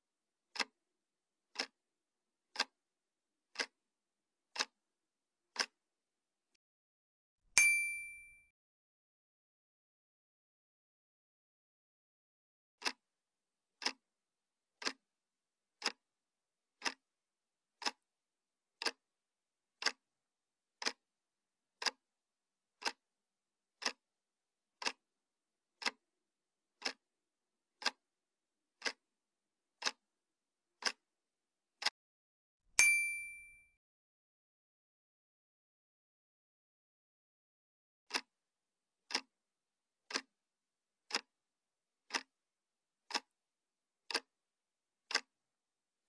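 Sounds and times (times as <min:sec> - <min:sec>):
clock-like ticking: 0:00.5 - 0:00.8, 0:01.5 - 0:01.8, 0:02.5 - 0:02.8, 0:03.5 - 0:03.8, 0:04.5 - 0:04.8, 0:05.5 - 0:05.8, 0:12.8 - 0:13.0, 0:13.8 - 0:14.1, 0:14.8 - 0:15.0, 0:15.8 - 0:16.0, 0:16.8 - 0:17.1, 0:17.8 - 0:18.0, 0:18.8 - 0:19.0, 0:19.8 - 0:20.0, 0:20.8 - 0:21.0, 0:21.8 - 0:22.0, 0:22.8 - 0:23.0, 0:23.8 - 0:24.0, 0:24.8 - 0:25.1, 0:25.8 - 0:26.0, 0:26.8 - 0:27.1, 0:27.8 - 0:28.1, 0:28.8 - 0:29.1, 0:29.8 - 0:30.1, 0:30.8 - 0:31.1, 0:38.1 - 0:38.3, 0:39.0 - 0:39.4, 0:40.1 - 0:40.4, 0:41.1 - 0:41.4, 0:42.1 - 0:42.4, 0:43.0 - 0:43.4, 0:44.1 - 0:44.4, 0:45.0 - 0:45.4
bright chime: 0:07.6 - 0:08.5, 0:32.8 - 0:33.7.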